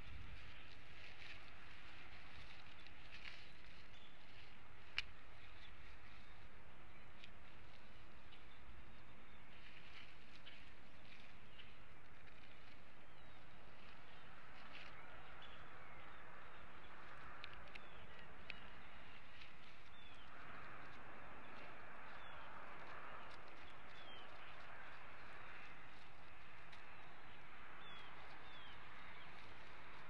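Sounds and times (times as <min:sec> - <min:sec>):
small bird chirping: 0:00.0 - 0:30.0
faint clicks: 0:02.1 - 0:06.2, 0:16.8 - 0:27.1.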